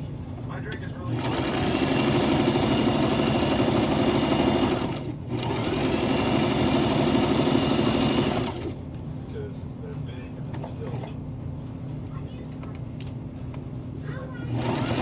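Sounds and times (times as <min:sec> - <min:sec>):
electric sewing machine stitching: 0:01.1 - 0:08.8, 0:14.4 - 0:15.0.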